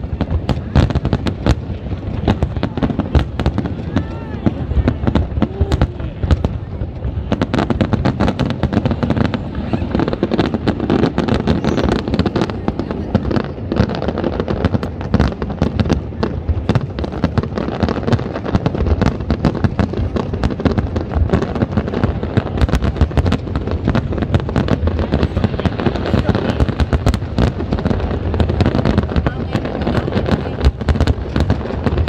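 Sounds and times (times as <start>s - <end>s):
fireworks cracking: 0.0s - 32.0s.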